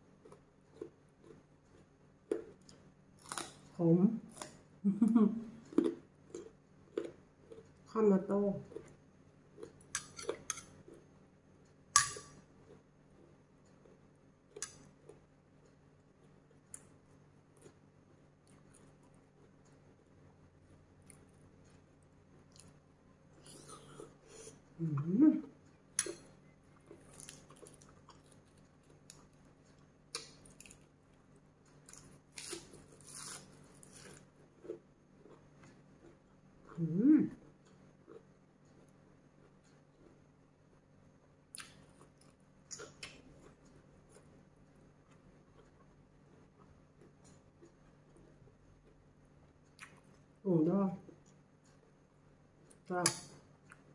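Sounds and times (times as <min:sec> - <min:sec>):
low steady hum: 0:00.0 - 0:53.9
chewing crunches: 0:00.2 - 0:03.7, 0:05.6 - 0:07.8, 0:26.0 - 0:30.9.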